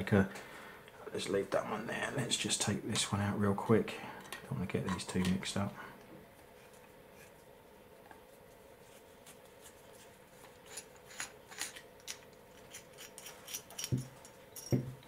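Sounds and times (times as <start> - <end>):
screwdriver clicking and scraping metal: 10.6 - 14.8.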